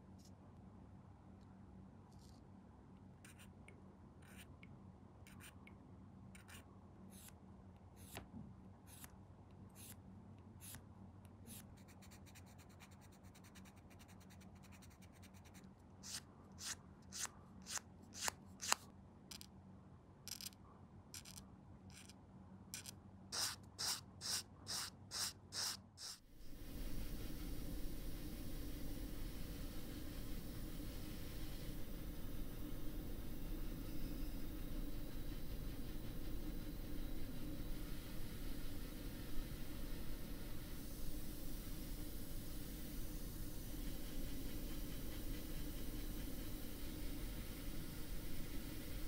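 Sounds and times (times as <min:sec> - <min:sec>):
tool scratching plastic: 0:11.5 - 0:19.5, 0:21.2 - 0:22.1, 0:22.8 - 0:26.2
steady hiss: 0:23.4 - 0:49.0
low hum: 0:26.3 - 0:49.0.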